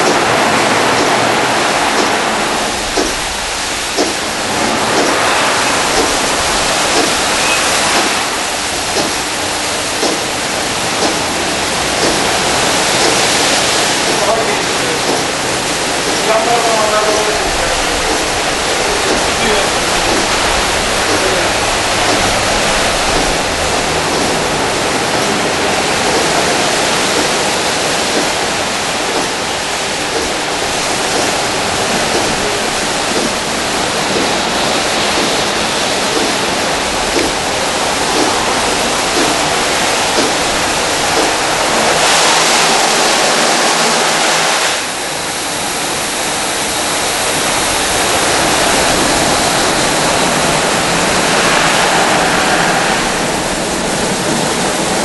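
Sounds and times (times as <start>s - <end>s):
car wash water jets spraying: 0.0s - 55.0s.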